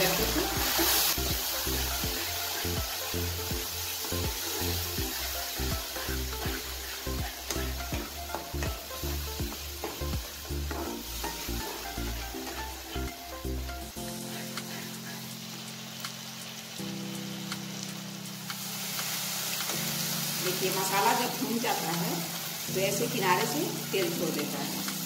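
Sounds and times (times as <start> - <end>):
masala sizzling in hot oil: 0.0 - 25.0
soft background music: 0.0 - 25.0
spatula stirring and scraping: 0.2 - 12.8.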